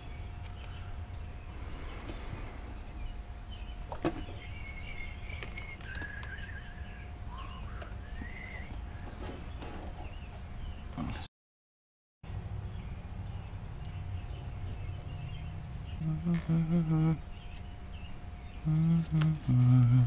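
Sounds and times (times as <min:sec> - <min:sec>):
steady low hum: 0:00.0 - 0:11.3, 0:12.3 - 0:20.0
faint wavering high chirps: 0:04.3 - 0:09.0.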